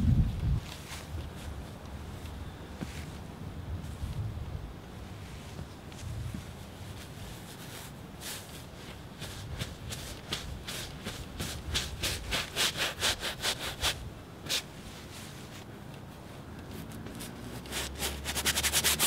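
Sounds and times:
paintbrush scrubbing on canvas: 7.3 - 15.4, 17.2 - 19.0.

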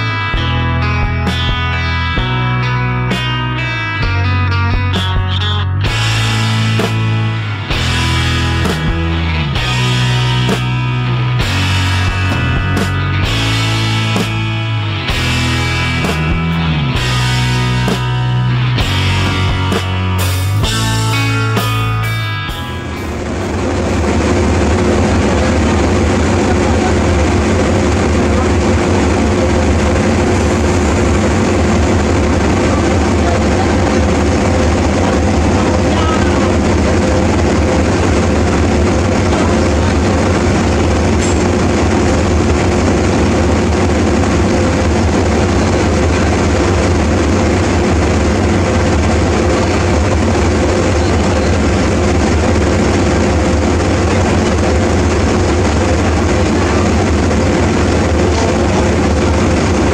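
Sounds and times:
locomotive engine running: 0.0 - 59.9
steady hum tones: 0.0 - 59.9.

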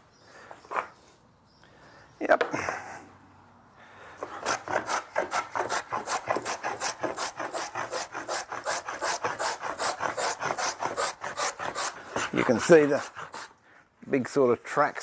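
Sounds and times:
hand plane cutting wood: 4.2 - 13.5.

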